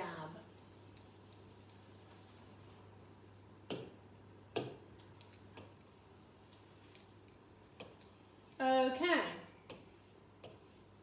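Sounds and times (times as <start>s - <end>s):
stylus rubbing on glass screen: 0.0s - 2.8s
low electrical hum: 0.0s - 11.0s.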